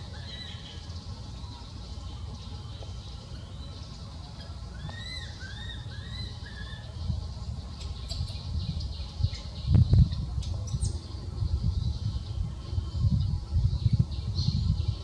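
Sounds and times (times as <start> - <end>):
high arched chirping calls: 0.0 - 2.2, 3.0 - 11.1.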